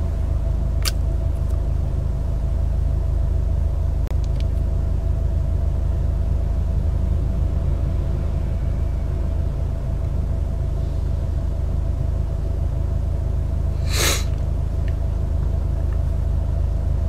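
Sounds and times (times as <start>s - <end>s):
car rumble from inside cabin: 0.0s - 17.0s
short sharp hiss: 13.8s - 14.3s.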